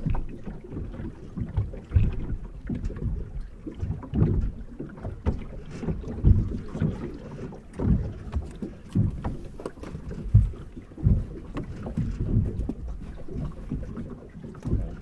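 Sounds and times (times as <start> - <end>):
small waves lapping: 0.0 - 15.0
wind on microphone: 5.3 - 15.0.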